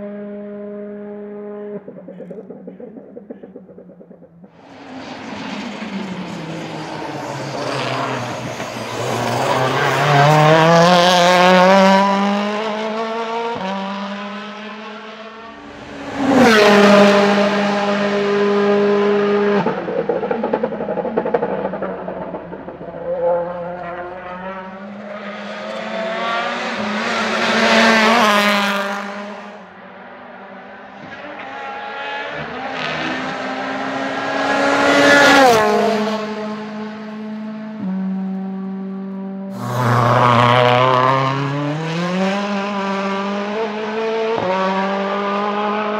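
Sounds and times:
race car engine passing: 4.0s - 45.9s.

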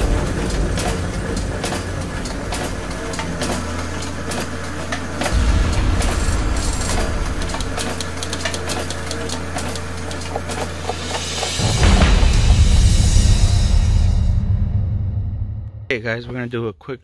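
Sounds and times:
sharp metallic clicks and ticks: 0.0s - 12.6s
low mechanical rumble: 0.0s - 16.6s.

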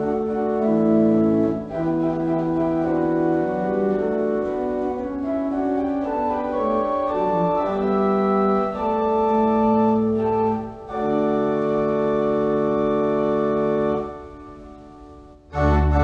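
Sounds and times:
church organ playing chords: 0.0s - 16.0s.

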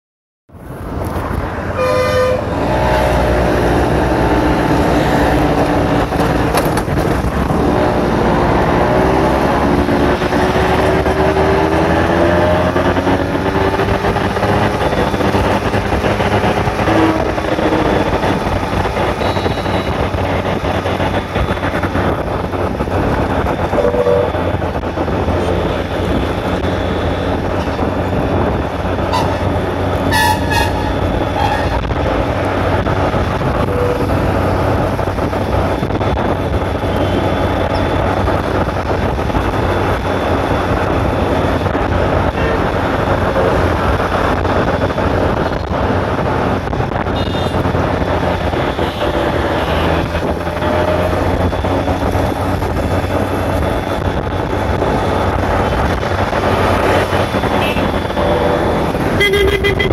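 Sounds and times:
passing engine: 0.5s - 59.9s
wind and road noise: 0.5s - 59.9s
vehicle horn toot: 1.8s - 3.0s, 19.2s - 19.9s, 23.7s - 24.4s, 29.1s - 29.5s, 30.1s - 31.9s, 47.1s - 47.6s, 57.5s - 59.9s.

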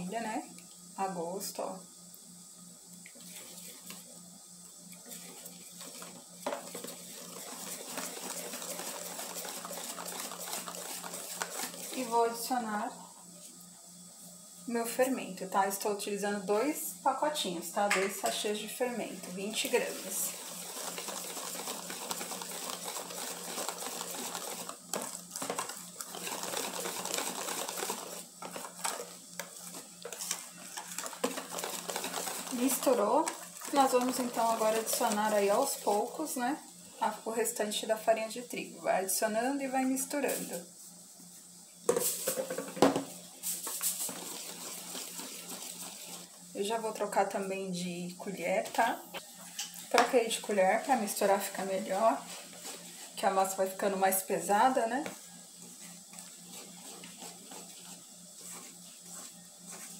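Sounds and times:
wire whisk beating in metal bowl: 5.4s - 12.2s, 19.2s - 29.1s, 30.1s - 36.4s.

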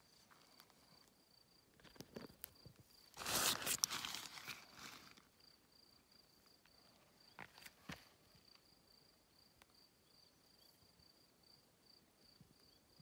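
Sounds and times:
faint insect trill: 0.0s - 13.0s.

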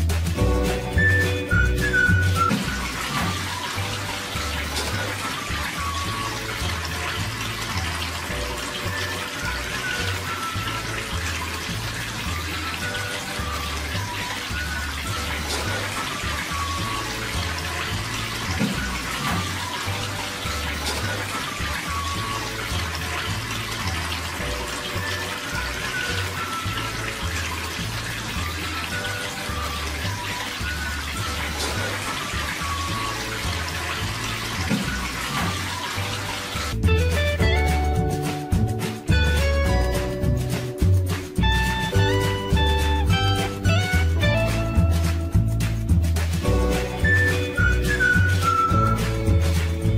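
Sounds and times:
background music with bass: 0.0s - 49.9s
fountain water trickling: 0.0s - 49.9s.

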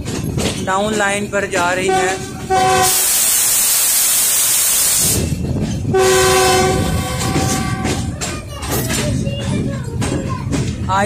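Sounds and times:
train wheels clicking over points: 0.0s - 10.9s
train running noise: 0.0s - 11.0s
locomotive horn blast: 1.9s - 3.6s, 5.9s - 8.1s
loud rushing hiss: 2.8s - 5.4s.

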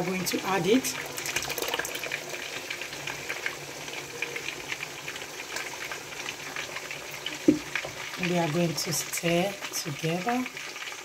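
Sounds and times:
stew boiling with pops: 0.0s - 11.0s
stock being poured: 0.8s - 2.4s.

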